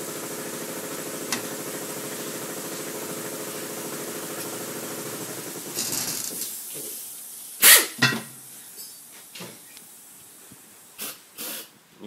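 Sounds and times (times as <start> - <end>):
aerosol spray hisses: 5.7 - 8.0, 11.0 - 11.7.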